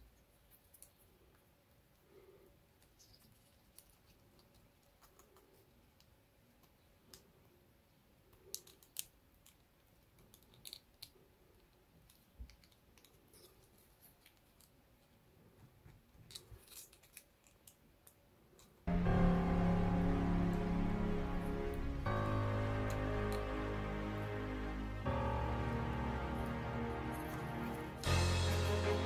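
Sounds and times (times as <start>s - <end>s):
music: 18.9s - 29.0s.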